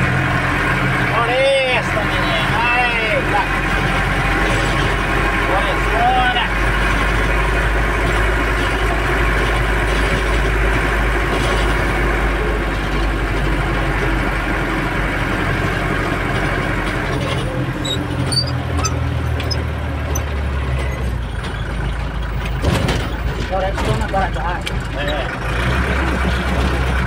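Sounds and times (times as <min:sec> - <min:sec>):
car engine from inside cabin: 0:00.0 - 0:22.6
road noise: 0:00.0 - 0:27.0
light rattles on stone street: 0:16.2 - 0:27.0.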